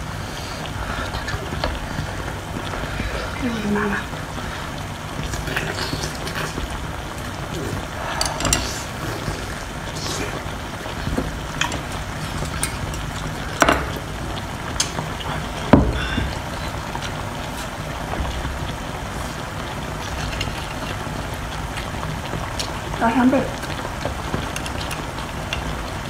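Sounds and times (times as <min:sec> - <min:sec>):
person chewing and slurping: 0:05.2 - 0:14.1, 0:19.1 - 0:22.8.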